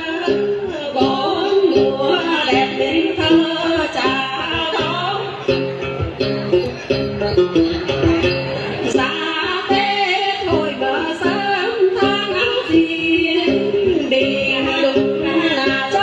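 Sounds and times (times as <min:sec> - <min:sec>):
women singing folk song: 0:00.0 - 0:05.5, 0:08.9 - 0:16.0
plucked string accompaniment: 0:00.0 - 0:16.0.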